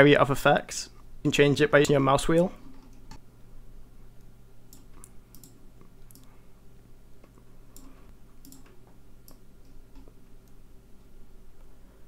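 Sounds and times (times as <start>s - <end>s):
faint electrical hum: 0.0s - 12.0s
computer mouse clicking: 4.7s - 6.3s, 7.2s - 10.6s.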